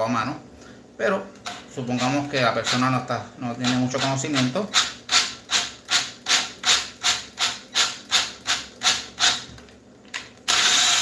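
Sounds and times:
drill driving tap cutting metal: 10.5 - 11.0.

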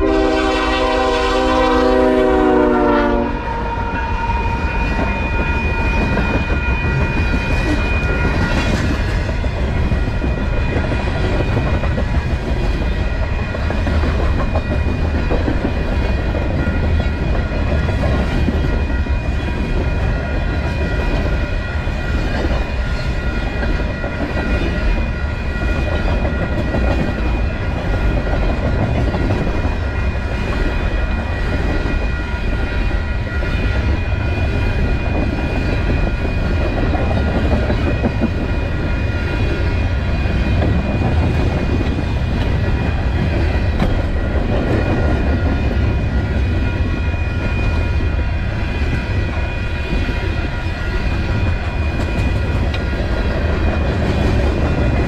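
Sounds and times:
train air horn: 0.0 - 4.6
freight cars rumbling on rails: 3.3 - 55.0.

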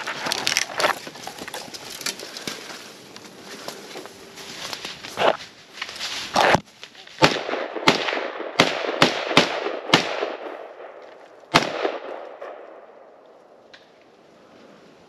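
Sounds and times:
echoing gunshots: 7.2 - 13.1.

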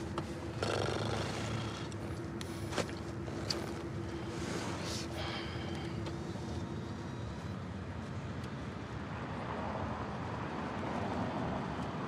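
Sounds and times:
faint steady hum: 0.0 - 10.4
car road and engine noise: 0.0 - 12.0.

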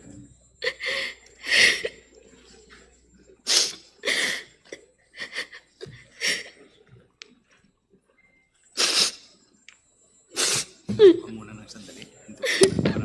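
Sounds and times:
woman sniffing and crying: 3.5 - 4.5, 8.8 - 9.3, 10.4 - 11.1.

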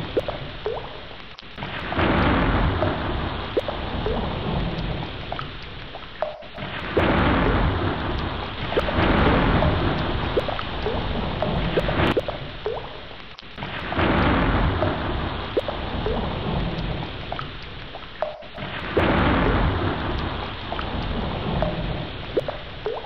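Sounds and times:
steady rain: 0.0 - 23.0
rolling thunder: 1.6 - 5.2, 6.6 - 12.4, 13.6 - 17.3, 18.6 - 22.4.

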